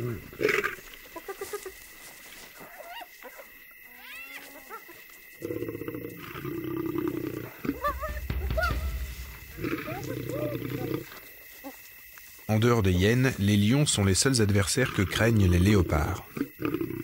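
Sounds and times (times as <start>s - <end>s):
hyenas squealing and whooping: 7.0s - 9.0s, 9.6s - 11.1s
deep rumble: 7.7s - 11.1s.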